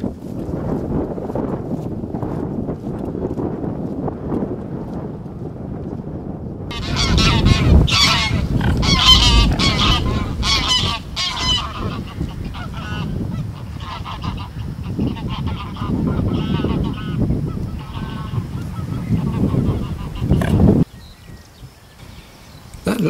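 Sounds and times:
geese honking: 6.7s - 20.9s.

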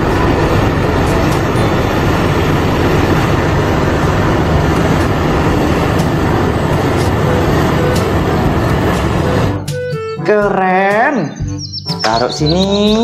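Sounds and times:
bulldozer engine rumble: 0.0s - 10.2s.

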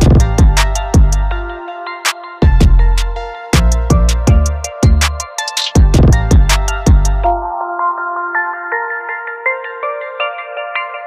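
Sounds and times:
sharp percussion beat: 0.0s - 1.3s, 2.4s - 7.3s
deep bass notes: 0.0s - 1.6s, 2.4s - 5.2s, 5.8s - 7.4s
electronic music: 0.0s - 11.0s
synth melody: 0.0s - 11.0s.

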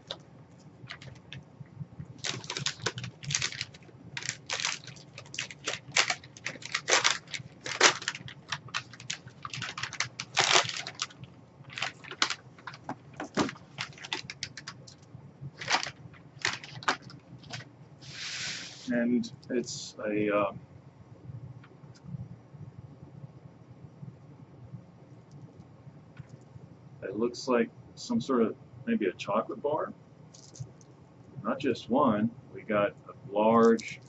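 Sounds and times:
paper bag rustling and crinkling: 0.8s - 1.4s, 2.1s - 18.9s, 30.4s - 30.7s, 33.6s - 34.0s.

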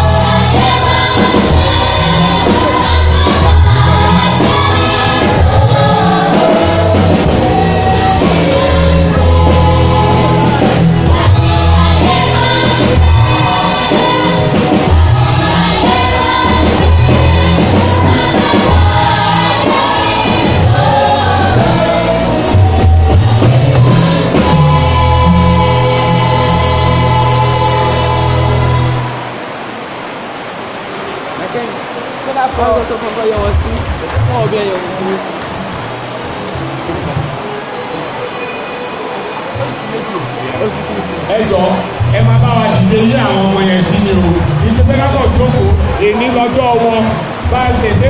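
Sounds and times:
deep amplified bass notes: 0.0s - 29.2s, 39.6s - 48.0s
youth choir singing in unison: 0.0s - 29.7s.

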